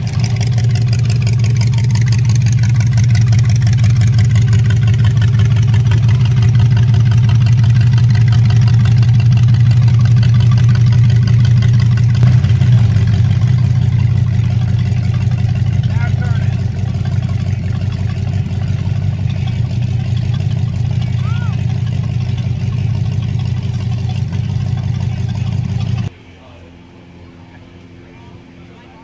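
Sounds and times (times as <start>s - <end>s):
truck engine running low: 0.0s - 29.0s.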